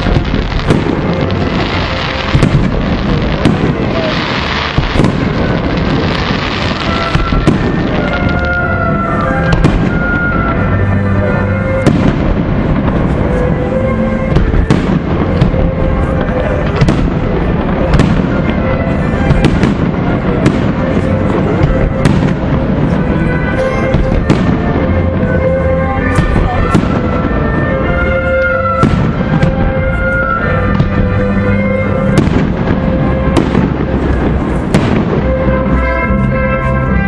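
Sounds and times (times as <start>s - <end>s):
firework crackle: 0.0s - 37.0s
music with held notes: 0.0s - 37.0s.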